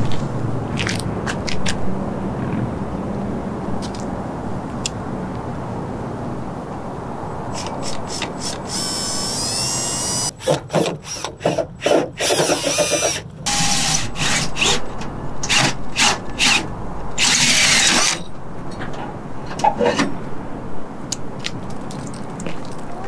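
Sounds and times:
drill hole saw grinding metal: 0:07.5 - 0:14.9, 0:15.5 - 0:18.3.

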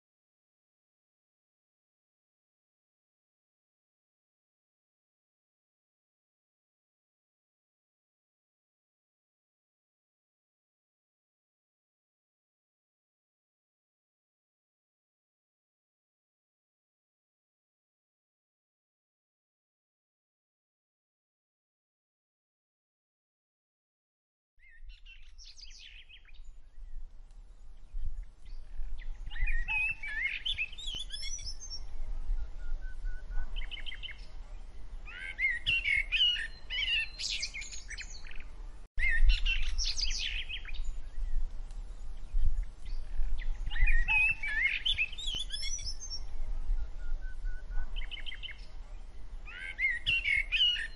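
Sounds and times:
wind rumble on microphone: 0:24.6 - 0:50.9
birds chirping: 0:24.7 - 0:50.9.

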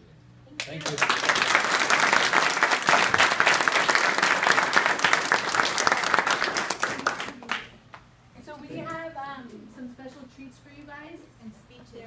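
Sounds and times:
audience applauding: 0:00.6 - 0:07.7.

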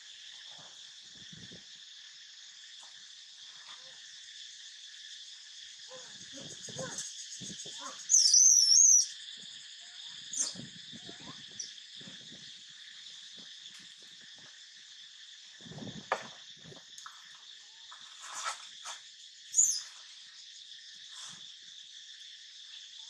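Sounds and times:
high-pitched insect chorus: 0:00.0 - 0:23.0
loud high wavering call: 0:07.8 - 0:09.1.

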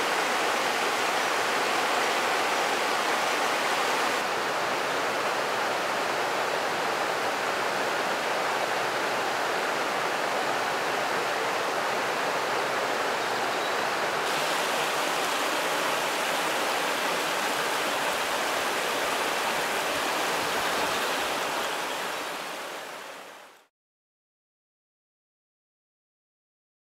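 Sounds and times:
water rushing over stones: 0:14.0 - 0:23.5.

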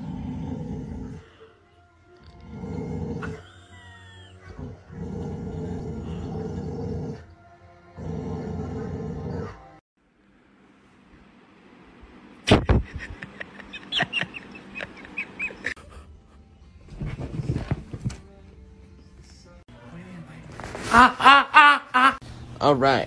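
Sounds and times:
dog growling: 0:00.0 - 0:01.3, 0:02.2 - 0:03.6, 0:04.4 - 0:07.3, 0:08.0 - 0:09.8.

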